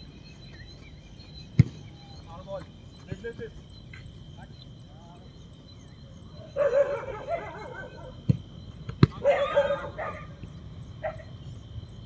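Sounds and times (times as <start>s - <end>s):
ball being kicked: 1.6s - 1.8s, 8.2s - 9.2s.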